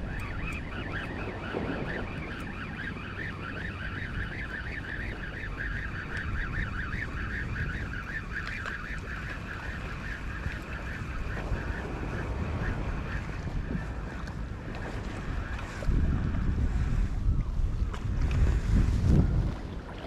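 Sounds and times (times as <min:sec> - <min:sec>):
fishing reel whirring: 0:00.0 - 0:12.8
wind rumble on microphone: 0:00.0 - 0:20.0.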